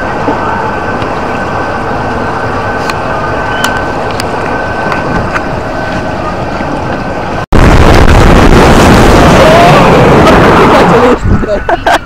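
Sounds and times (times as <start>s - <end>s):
steady rumble: 0.0s - 12.0s
wind buffeting microphone: 3.3s - 11.7s.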